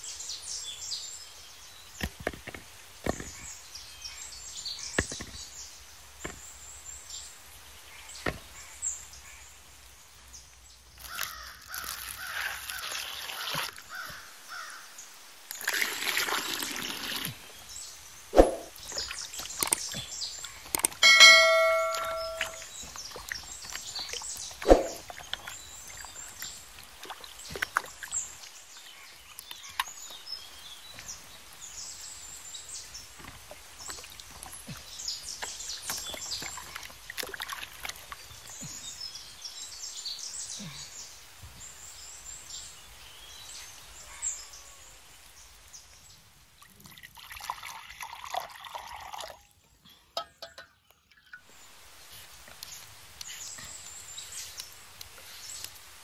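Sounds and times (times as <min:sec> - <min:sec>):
water sloshing and splashing: 0:18.3 - 0:30.1, 0:33.1 - 0:38.8
metallic bell-like ring: 0:21.0 - 0:22.6
water pouring into glass bowl: 0:21.0 - 0:22.7, 0:46.9 - 0:49.4.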